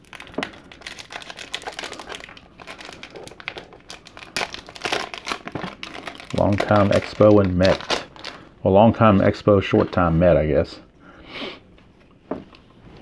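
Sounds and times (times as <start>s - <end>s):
foil wrapper crinkling: 0.0s - 8.5s.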